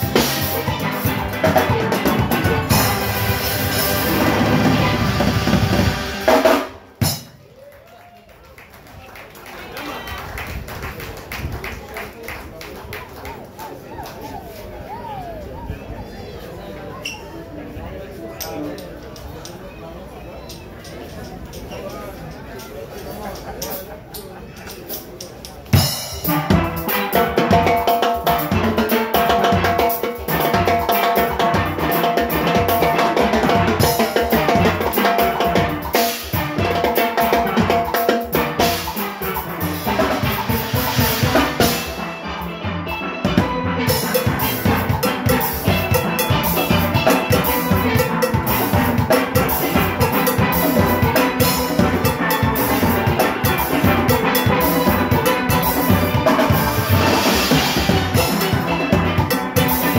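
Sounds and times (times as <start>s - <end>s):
steel pans playing melody: 0.0s - 7.3s, 25.8s - 59.9s
drum kit and timbales: 0.0s - 7.7s, 22.9s - 59.9s.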